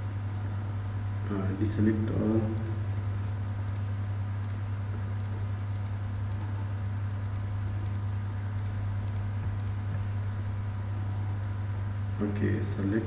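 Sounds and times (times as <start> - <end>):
low electrical hum: 0.0 - 13.0
computer mouse clicks: 3.7 - 4.6, 5.2 - 6.5, 7.2 - 9.8.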